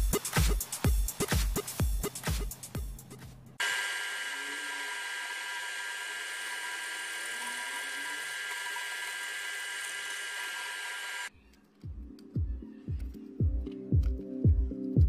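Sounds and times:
drill press whining: 3.6 - 11.3.

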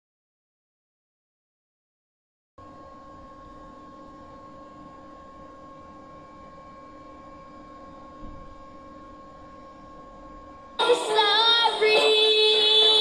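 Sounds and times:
low hum and hiss: 2.6 - 13.0.

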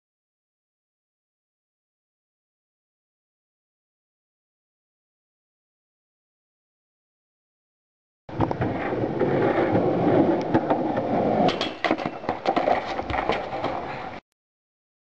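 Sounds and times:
skateboard clacking on ground: 8.3 - 14.2
skateboard wheels rolling on concrete: 8.3 - 14.2.

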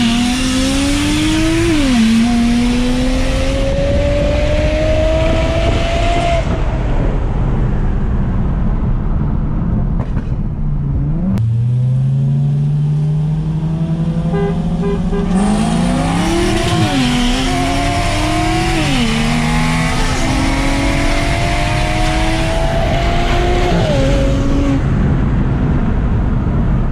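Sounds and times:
car engine accelerating hard: 0.0 - 7.2, 10.9 - 26.1.

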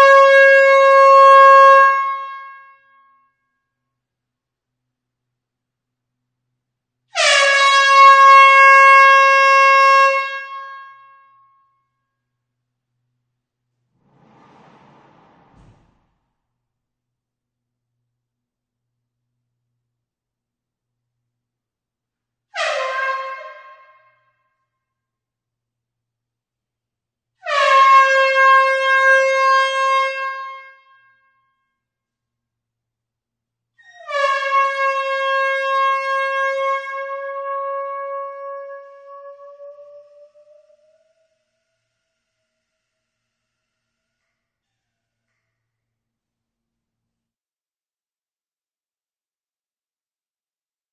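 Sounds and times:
air horn blast in a hall: 0.0 - 3.1, 7.1 - 11.4, 22.5 - 24.4, 27.4 - 31.3, 34.1 - 44.0
air horn blast: 27.4 - 30.8.

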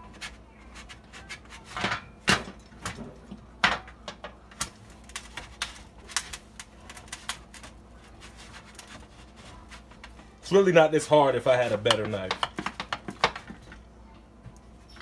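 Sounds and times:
knife sawing through frozen bread: 8.0 - 9.9.

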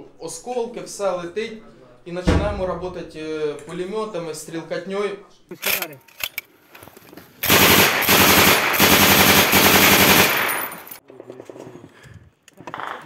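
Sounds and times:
machine gun firing burst: 7.4 - 11.0.

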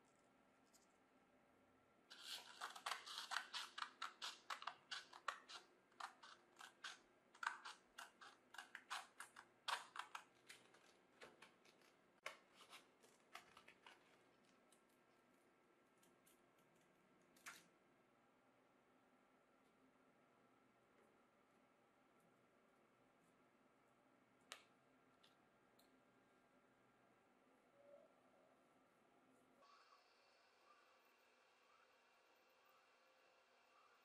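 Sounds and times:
scissors cutting sandpaper: 2.1 - 10.6.

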